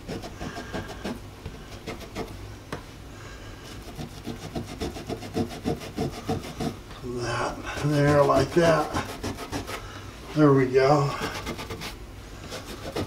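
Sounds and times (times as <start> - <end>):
cloth scrubbing metal: 3.9 - 9.8.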